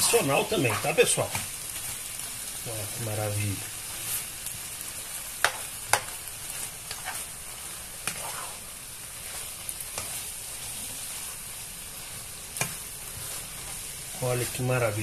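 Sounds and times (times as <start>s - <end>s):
chicken sizzling in a frying pan: 0.0s - 15.0s
spatula scraping pan: 5.4s - 14.6s.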